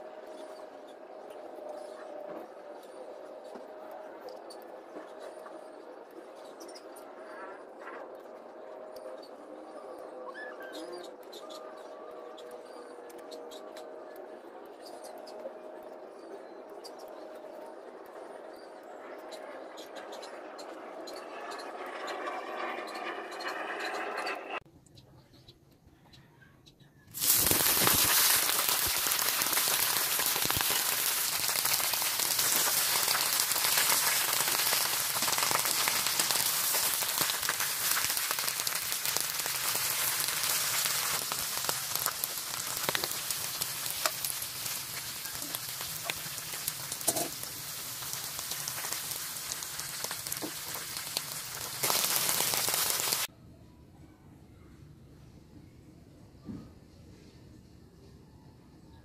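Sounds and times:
oil sizzling in a pan: 0:27.2 - 0:53.3.

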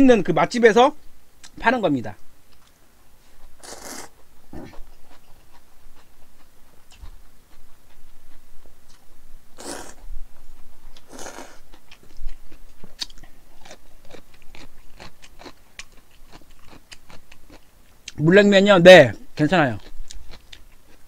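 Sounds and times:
close chewing with mouth clicks: 0:02.5 - 0:18.2, 0:19.8 - 0:21.0
noodles slurped: 0:03.6 - 0:04.1, 0:09.6 - 0:10.0, 0:11.0 - 0:11.6.

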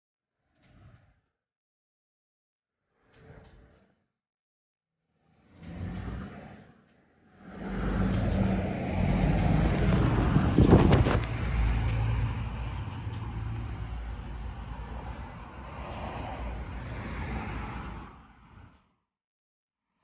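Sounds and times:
vehicle engine rumbling: 0:07.4 - 0:15.8
brief clatter: 0:09.8 - 0:12.1.

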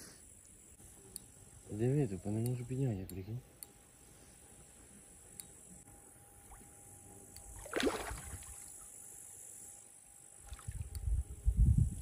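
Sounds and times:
water churning: 0:07.6 - 0:08.6
fish splashing: 0:07.6 - 0:08.7.

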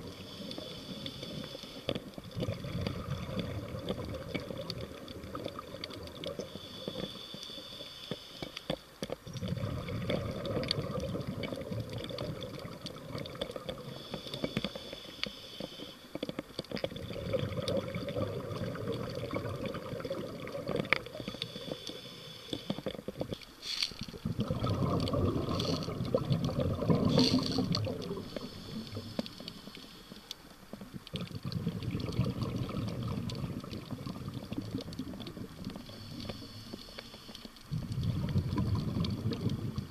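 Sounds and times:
scuba breathing inhalations: 0:00.0 - 0:03.7, 0:06.2 - 0:10.9, 0:13.5 - 0:16.3, 0:20.4 - 0:30.6, 0:35.6 - 0:39.9
bubbling exhalations: 0:02.2 - 0:06.4, 0:09.3 - 0:13.9, 0:16.8 - 0:21.7, 0:23.9 - 0:29.1, 0:31.0 - 0:36.2, 0:37.7 - 0:39.9.

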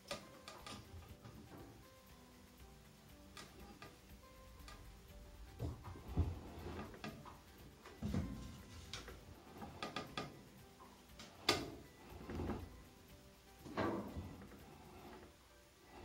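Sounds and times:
wooden knocks and clicks: 0:05.5 - 0:10.4.

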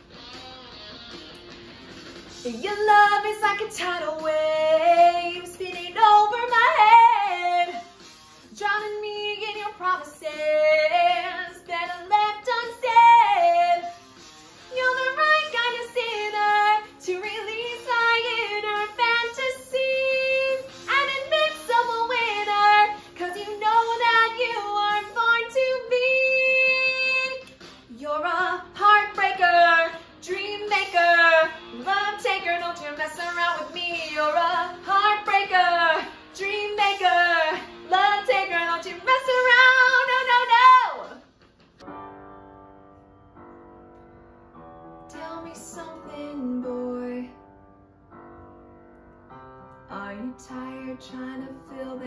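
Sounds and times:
woman singing unaccompanied: 0:02.4 - 0:07.9, 0:08.5 - 0:13.9, 0:14.8 - 0:41.2, 0:45.1 - 0:47.4, 0:49.9 - 0:52.0.

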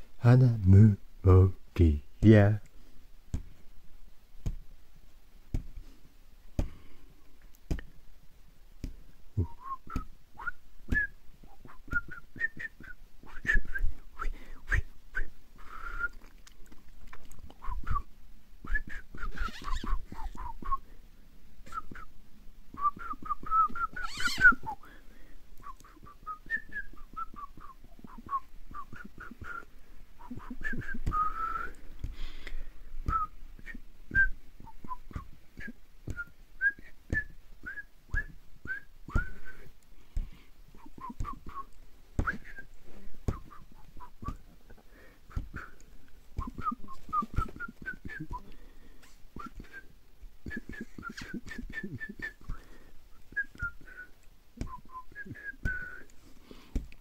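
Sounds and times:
person whistling a tune: 0:09.4 - 0:16.2, 0:17.6 - 0:20.8, 0:21.6 - 0:22.1, 0:22.8 - 0:24.9, 0:25.6 - 0:31.8, 0:33.0 - 0:39.7, 0:40.8 - 0:42.7, 0:43.3 - 0:44.4, 0:45.3 - 0:45.8, 0:46.4 - 0:48.5, 0:49.4 - 0:52.7, 0:53.3 - 0:56.1.

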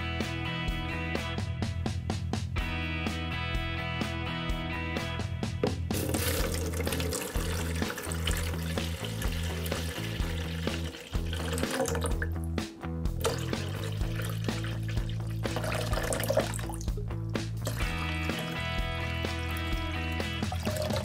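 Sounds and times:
background music with bass line: 0:00.0 - 0:21.0
water pouring and splashing: 0:05.9 - 0:12.4, 0:13.2 - 0:21.0.

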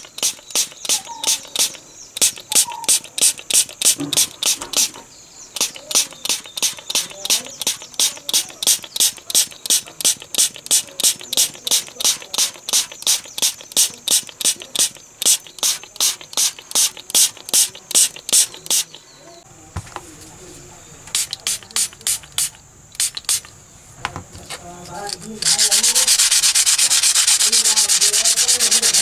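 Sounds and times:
spray bottle hissing sprays: 0:00.0 - 0:19.0, 0:21.1 - 0:23.5, 0:25.0 - 0:29.0.

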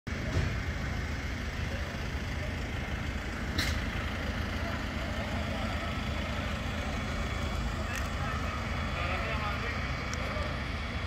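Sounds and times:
vehicle engines idling: 0:00.1 - 0:11.0.

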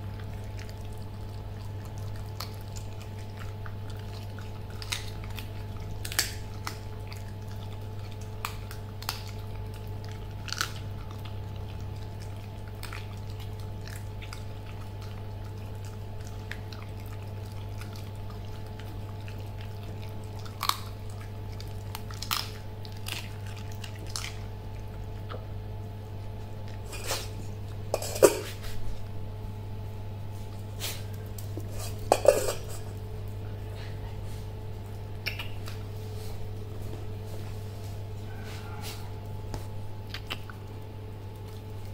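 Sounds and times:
puppy crunching chicken bones: 0:00.0 - 0:29.1, 0:34.7 - 0:37.2, 0:38.6 - 0:41.9
metal food bowl clattering: 0:27.9 - 0:28.6, 0:31.7 - 0:32.9.

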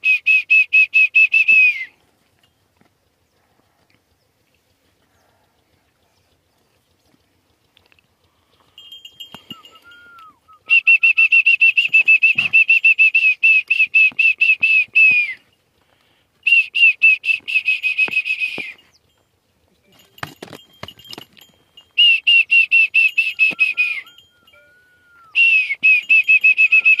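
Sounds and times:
soft rising and falling whistles: 0:09.4 - 0:15.4, 0:16.4 - 0:18.9, 0:22.0 - 0:27.0
loud high trilled whistle: 0:09.5 - 0:15.4, 0:16.5 - 0:18.8, 0:22.0 - 0:27.0.

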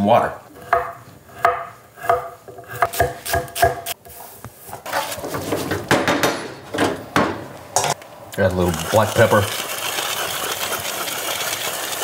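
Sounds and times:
knife chopping on wooden board: 0:00.6 - 0:04.0
wooden spoon scraping skillet: 0:04.0 - 0:05.9, 0:08.5 - 0:12.0
food sizzling: 0:07.6 - 0:12.0.

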